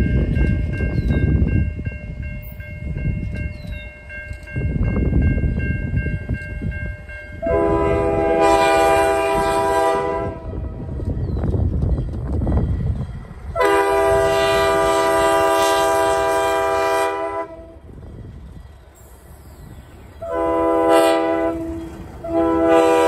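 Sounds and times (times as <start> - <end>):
low rumble of train: 0.0 - 23.0
diesel locomotive horn blasts: 7.3 - 10.9, 13.5 - 17.9, 20.2 - 23.0.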